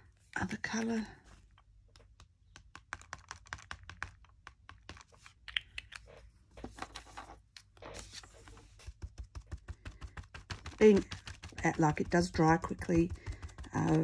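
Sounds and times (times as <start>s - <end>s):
paper rustling: 6.1s - 14.0s.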